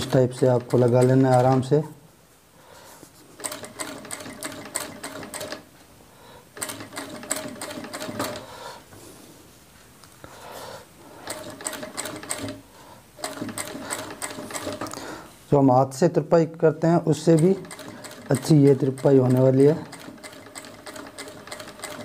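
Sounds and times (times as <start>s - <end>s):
sewing machine clatter: 0.0s - 1.8s, 3.4s - 5.6s, 6.6s - 8.5s, 11.2s - 12.6s, 13.2s - 15.0s, 17.2s - 22.0s.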